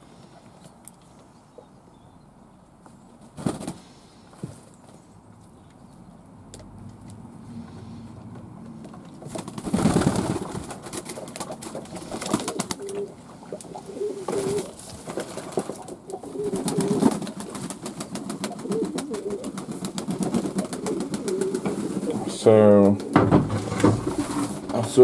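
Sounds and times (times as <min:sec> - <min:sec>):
loud rustling: 0:09.2 - 0:13.0, 0:23.3 - 0:25.0
pigeons cooing: 0:09.8 - 0:24.7.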